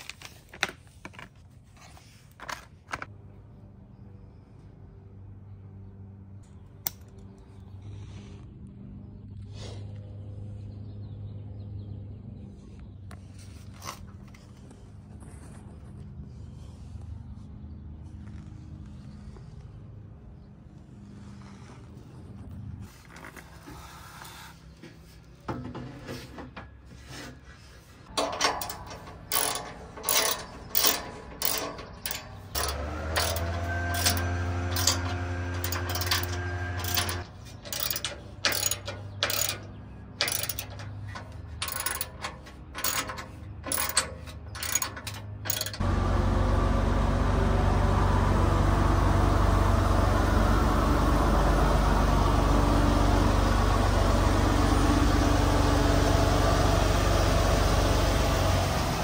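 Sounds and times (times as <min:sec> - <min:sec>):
hand ratchet clicking: 0:28.2 - 0:45.8.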